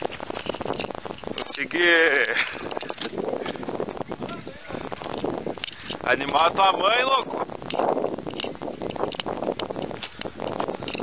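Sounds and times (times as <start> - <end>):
footsteps crunching on gravel: 0.0 - 6.4.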